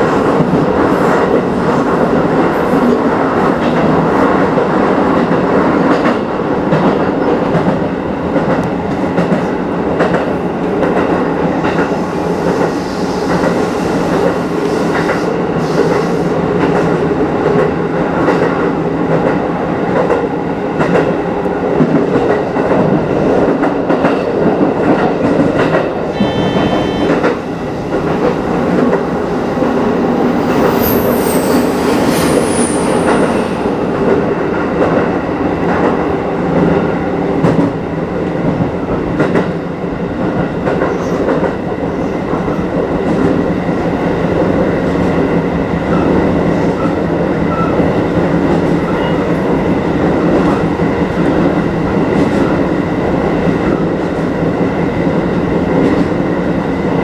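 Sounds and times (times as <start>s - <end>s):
electric train rumble and hum: 0.0s - 57.0s
rail-joint clicks: 20.8s - 29.8s
high wheel squeal: 26.2s - 27.2s, 30.4s - 33.4s.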